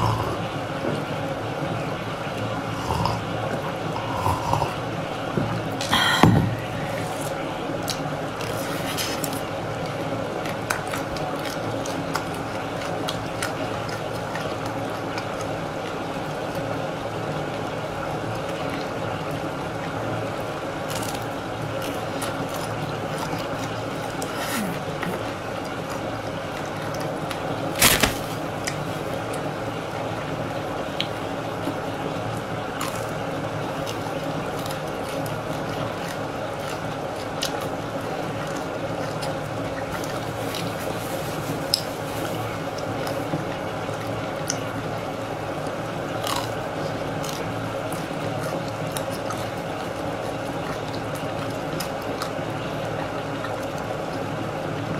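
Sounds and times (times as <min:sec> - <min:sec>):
steady background noise: 0:00.0 - 0:54.9
biting and chewing chocolate shell: 0:20.8 - 0:28.8, 0:45.6 - 0:52.4
loud sharp crunch: 0:27.8 - 0:28.4.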